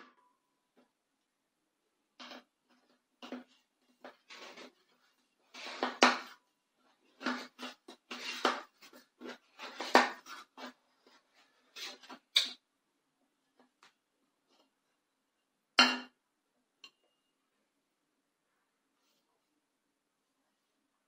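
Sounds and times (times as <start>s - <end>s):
tool scraping metal pan: 7.2s - 10.8s.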